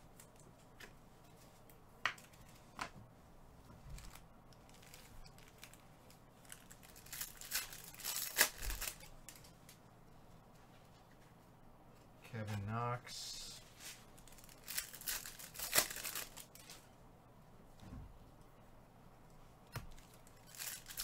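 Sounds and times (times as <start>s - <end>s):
foil packs crinkling: 4.0s - 5.8s, 6.4s - 9.5s, 13.8s - 16.8s, 19.9s - 21.0s
foil pack tearing open: 6.5s - 9.1s, 14.2s - 16.7s, 20.4s - 21.0s.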